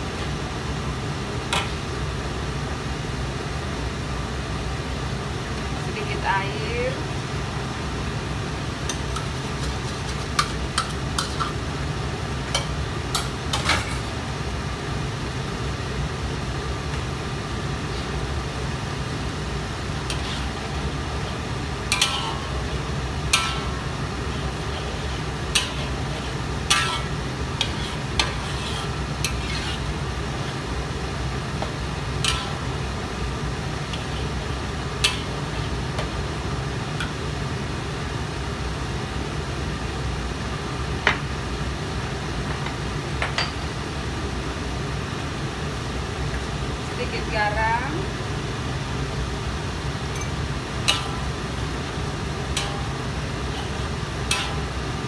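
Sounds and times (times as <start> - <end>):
metal spatula scraping a wok: 20.1 - 30.7, 32.2 - 32.9, 52.5 - 54.8.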